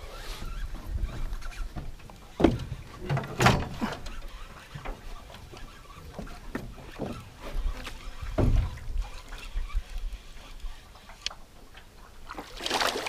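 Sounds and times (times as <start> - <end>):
fish thrashing and splashing water: 12.3 - 13.0.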